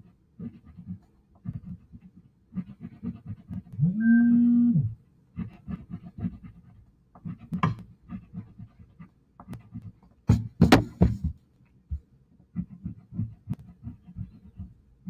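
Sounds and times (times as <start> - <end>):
crayon scribbling on paper: 0.0 - 3.8, 5.3 - 11.1, 12.5 - 14.8
crayon knocking on table: 10.3 - 11.4.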